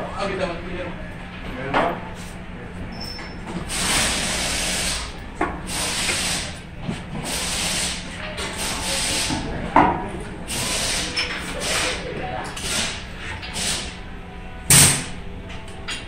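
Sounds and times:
pneumatic air tools hissing: 0:03.0 - 0:06.6, 0:07.2 - 0:09.5, 0:10.5 - 0:14.0.

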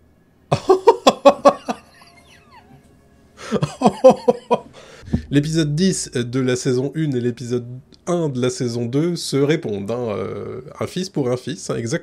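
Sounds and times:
man laughing: 0:00.5 - 0:02.8, 0:03.4 - 0:05.3.

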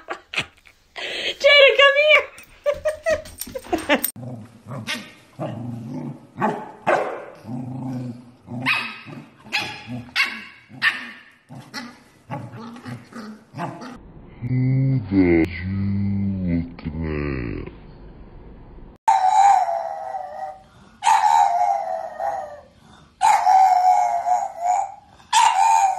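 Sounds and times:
puppy barking: 0:06.4 - 0:07.4, 0:08.6 - 0:11.3, 0:23.2 - 0:25.9.

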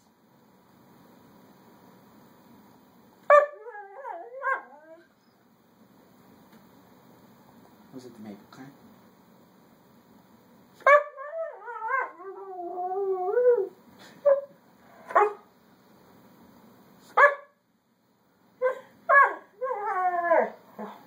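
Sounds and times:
dog yelping: 0:03.3 - 0:05.1, 0:10.8 - 0:12.9, 0:18.6 - 0:21.0
dog whining: 0:03.3 - 0:05.4, 0:10.9 - 0:15.4, 0:18.6 - 0:21.0.

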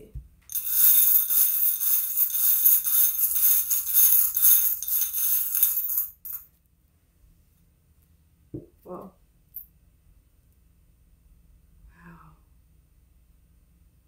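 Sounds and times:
charms clinking in ceramic bowl: 0:00.5 - 0:06.4.

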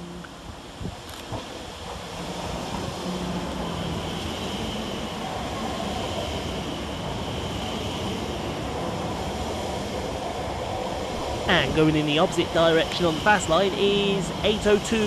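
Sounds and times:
train rumble: 0:00.0 - 0:15.0
high electrical whine: 0:11.1 - 0:14.1.

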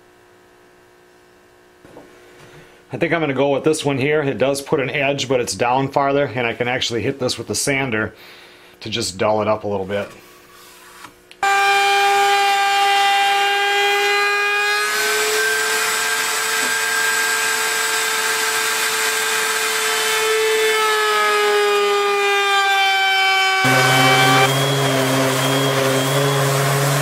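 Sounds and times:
wood router whining: 0:11.4 - 0:27.0.

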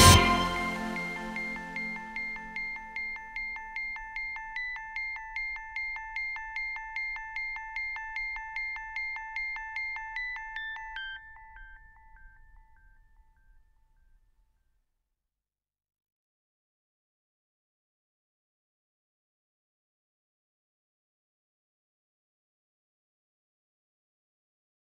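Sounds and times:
background music with pulsing note: 0:00.0 - 0:12.0.

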